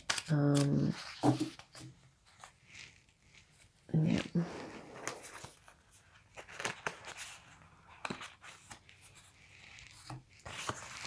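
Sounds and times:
cards clicking and rustling: 0.0s - 2.0s, 5.0s - 9.0s.

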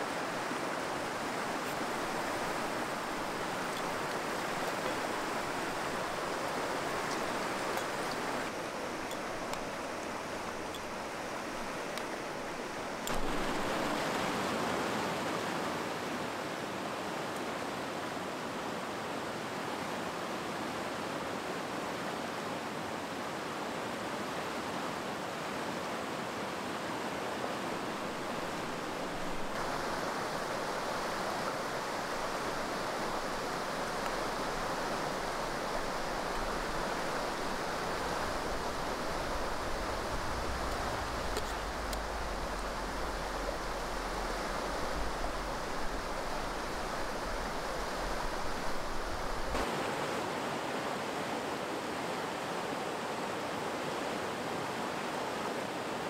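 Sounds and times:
mountain stream rushing: 0.0s - 56.0s
faint ticks: 40.4s - 42.8s.

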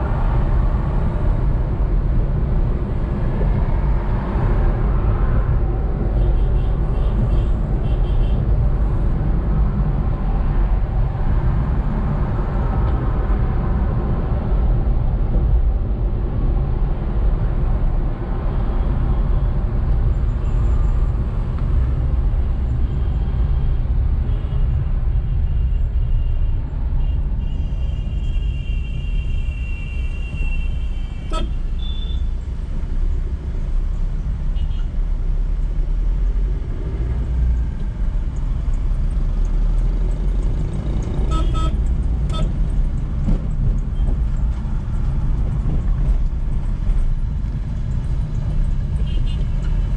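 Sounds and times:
car road and engine rumble: 0.0s - 49.9s
vehicle horns honking: 27.0s - 32.3s, 41.3s - 42.5s.

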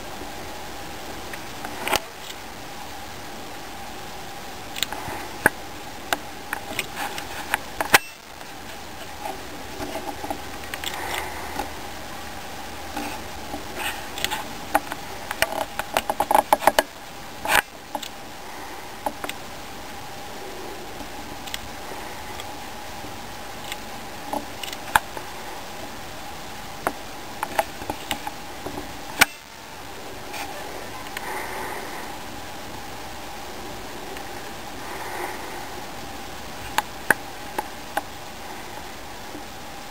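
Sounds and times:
faint steady hum: 0.0s - 39.9s
squirrel chewing with crunching clicks: 1.3s - 2.5s, 4.7s - 11.8s, 12.9s - 19.5s, 20.9s - 25.8s, 26.8s - 29.4s, 36.6s - 39.5s.

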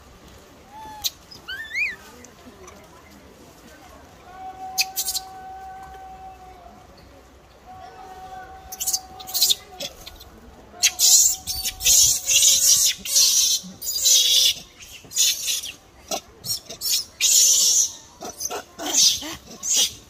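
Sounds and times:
monkeys screaming: 0.7s - 2.0s, 4.7s - 5.6s, 8.7s - 10.2s, 10.8s - 20.0s.

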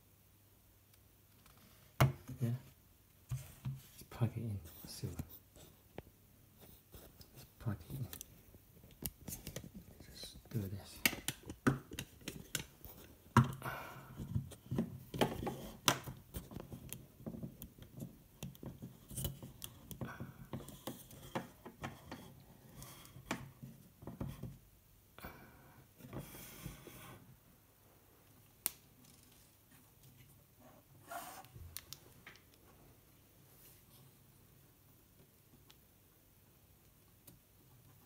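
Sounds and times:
plastic clicks and taps: 11.0s - 12.7s.

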